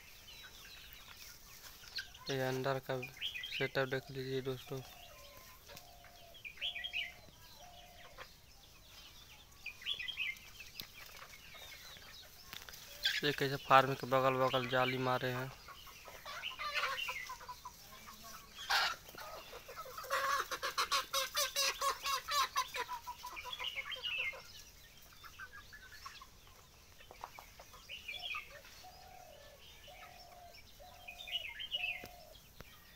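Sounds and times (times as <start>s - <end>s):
chickens clucking: 0.0s - 32.9s
short chicken calls: 15.8s - 24.4s.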